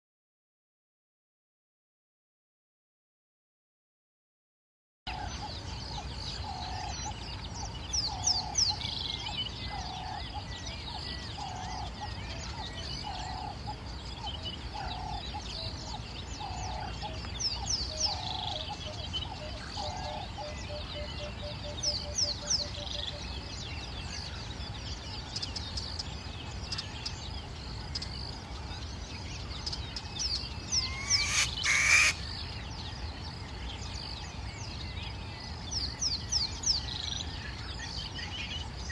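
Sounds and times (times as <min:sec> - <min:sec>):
low hooting bird call: 0:30.8 - 0:32.3.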